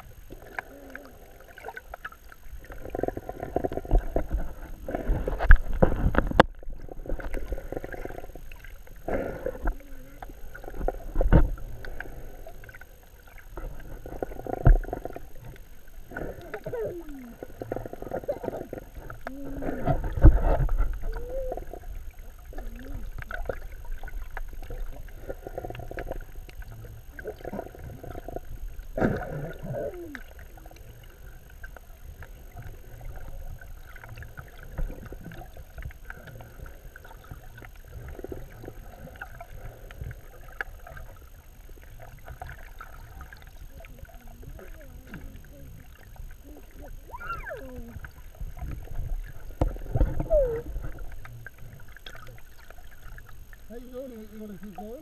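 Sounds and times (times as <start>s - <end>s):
muffled gliding tones: 0.0s - 55.0s
muffled water sloshing and rushing: 0.0s - 55.0s.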